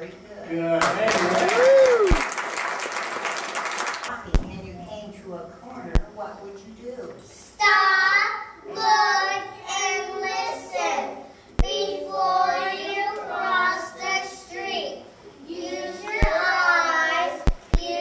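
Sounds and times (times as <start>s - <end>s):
child singing: 7.6s - 18.0s
sharp click: 17.4s - 17.8s.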